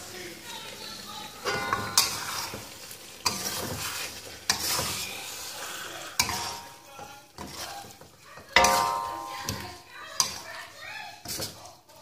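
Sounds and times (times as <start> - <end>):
food sizzling in a wok: 0.0 - 12.0
metal spatula clacking on pan: 1.4 - 2.6, 6.2 - 10.5.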